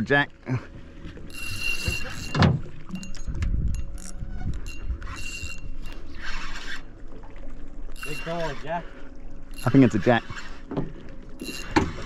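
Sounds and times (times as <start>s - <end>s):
fishing reel whirring: 1.2s - 7.0s, 7.9s - 10.8s, 11.4s - 12.0s.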